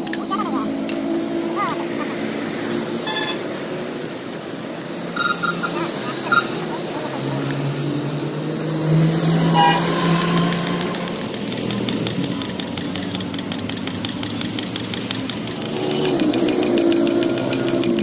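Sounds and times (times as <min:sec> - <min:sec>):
vehicle engine running: 0:01.5 - 0:18.0
rapid even ticking: 0:08.9 - 0:18.0.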